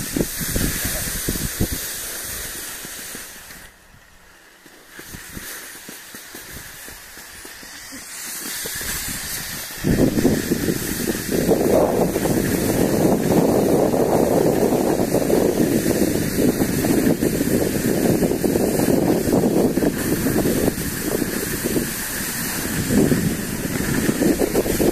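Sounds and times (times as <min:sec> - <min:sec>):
wind on microphone: 0:00.0 - 0:02.6, 0:08.6 - 0:24.9
skis scraping over snow: 0:00.0 - 0:24.9.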